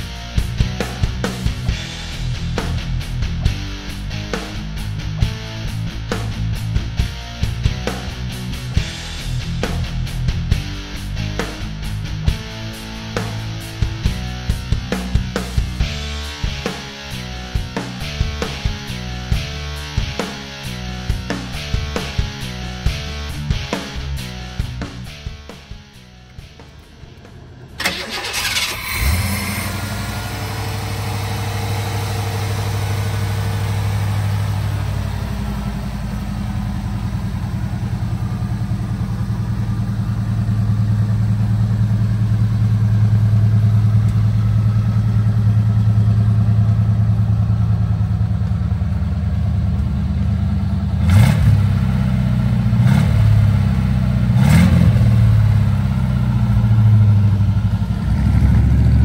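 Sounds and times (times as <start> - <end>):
car engine idling: 0.0 - 59.0
engine revving blips: 26.2 - 46.9, 50.9 - 55.9, 56.5 - 59.0.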